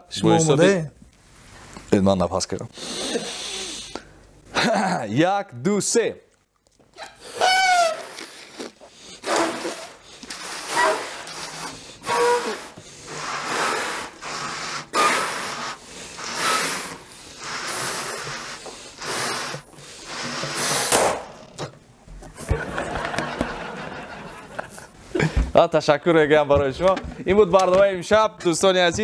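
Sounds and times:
gusts of breath blowing balloons: 0:02.7 - 0:04.2, 0:07.0 - 0:21.2
balloon rubber squeaking: 0:07.0 - 0:21.6.

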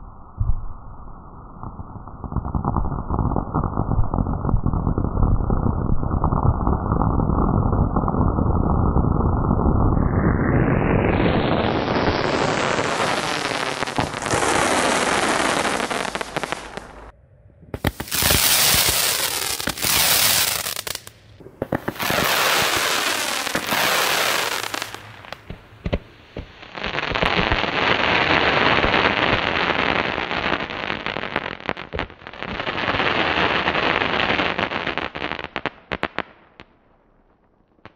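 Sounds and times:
firework battery hissing and crackling: 0:09.8 - 0:17.1, 0:17.7 - 0:36.4.

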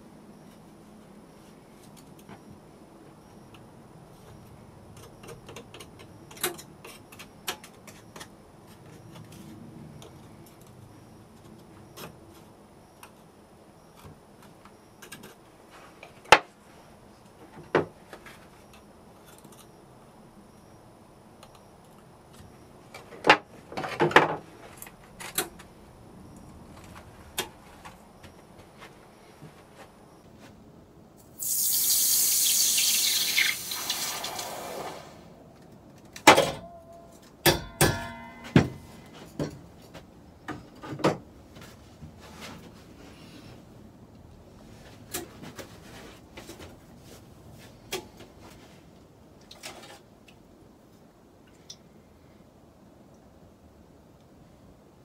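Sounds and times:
hot metal hissing in water: 0:31.4 - 0:35.3.

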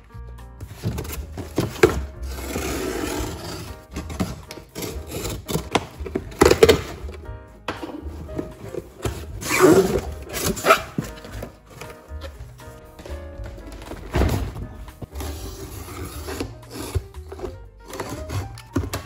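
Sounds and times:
background music: 0:00.0 - 0:19.0
box thumps: 0:00.6 - 0:02.1, 0:03.4 - 0:15.1
cardboard rustling and scraping: 0:00.6 - 0:07.2, 0:07.8 - 0:19.0
box cutter slitting packing tape: 0:00.9 - 0:07.0, 0:09.4 - 0:11.1, 0:15.2 - 0:19.0.

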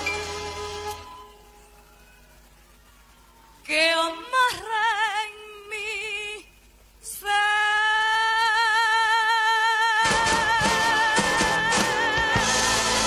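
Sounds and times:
woman singing with vibrato: 0:03.7 - 0:13.0.

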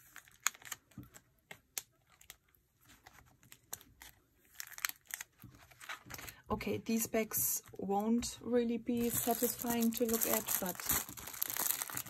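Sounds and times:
plastic pages crinkling: 0:00.0 - 0:06.4, 0:09.0 - 0:12.0.

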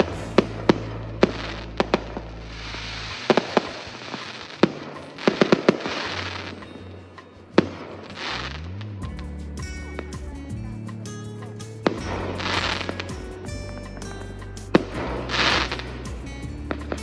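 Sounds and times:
fireworks bangs: 0:00.0 - 0:08.8, 0:11.8 - 0:13.5, 0:14.7 - 0:17.0
fireworks hissing crackle: 0:00.0 - 0:09.3, 0:11.8 - 0:17.0.

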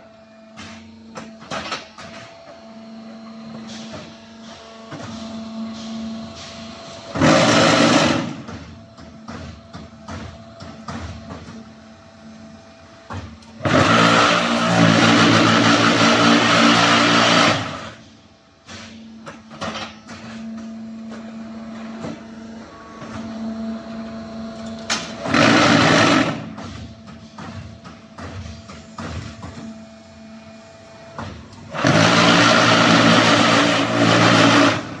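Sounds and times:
vibration table buzzing: 0:31.7 - 0:35.0.

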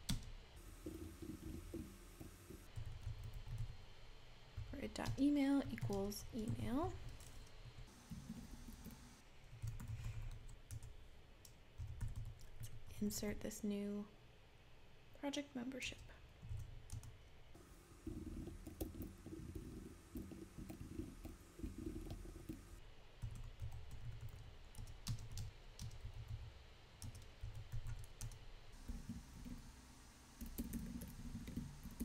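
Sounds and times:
keyboard typing clicks: 0:30.4 - 0:32.0.

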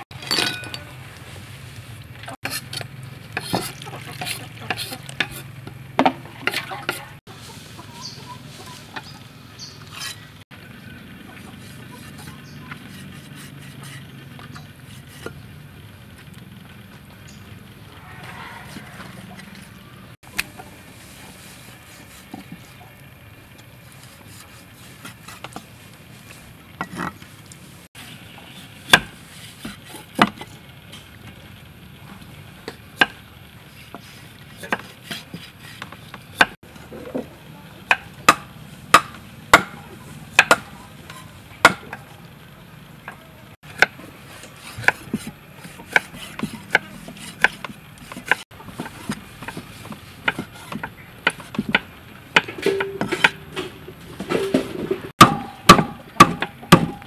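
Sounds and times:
cleaver chopping on wooden block: 0:40.4 - 0:40.7, 0:55.2 - 0:57.0.

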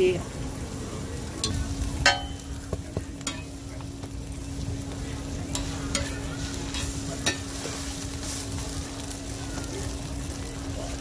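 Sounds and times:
food sizzling on a griddle: 0:00.0 - 0:11.0
metal spatula scraping a plate: 0:05.6 - 0:08.4.

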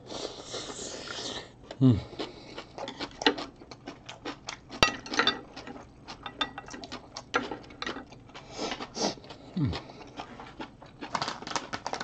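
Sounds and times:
chewing with wet mouth clicks: 0:01.6 - 0:04.8.

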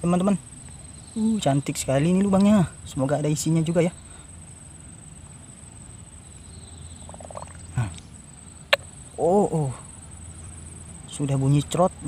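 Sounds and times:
crickets droning: 0:00.0 - 0:12.0.

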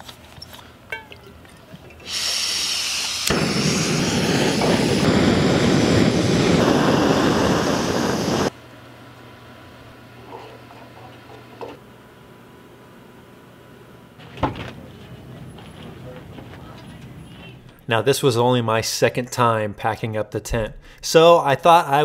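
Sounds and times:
gas hissing from valve: 0:02.0 - 0:08.5
gas stove burner roaring: 0:02.0 - 0:17.9.

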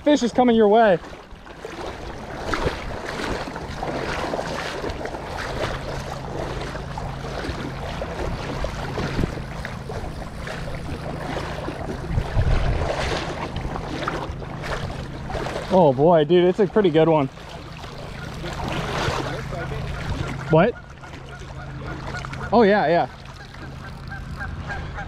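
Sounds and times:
wind buffeting microphone: 0:00.0 - 0:15.7
creek water rushing: 0:00.0 - 0:25.0.

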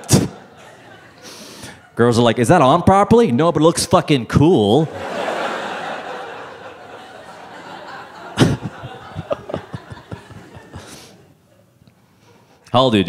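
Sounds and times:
audience laughter: 0:00.0 - 0:01.4, 0:04.8 - 0:11.7.

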